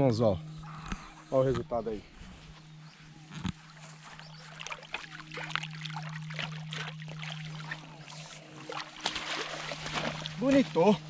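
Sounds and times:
steady low hum: 0.0 - 11.0
fish splashing in water: 4.4 - 11.0.

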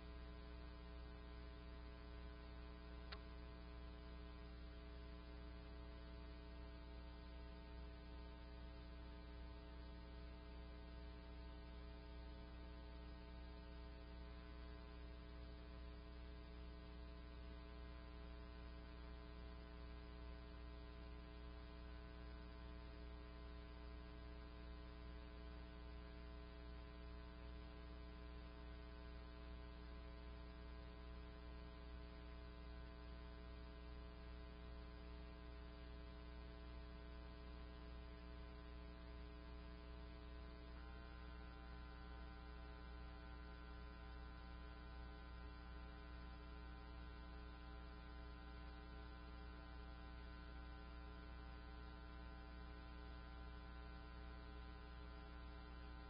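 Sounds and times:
faint electrical hum: 0.0 - 56.0
small click: 3.0 - 3.4.

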